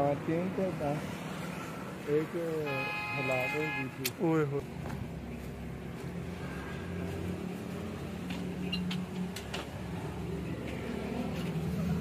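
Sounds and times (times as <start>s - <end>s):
low engine hum: 4.6s - 12.0s.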